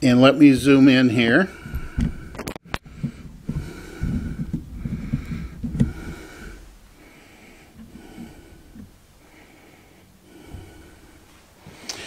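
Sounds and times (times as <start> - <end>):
wheezy breathing: 1.4 - 12.0
camera handling rumble: 1.7 - 6.5.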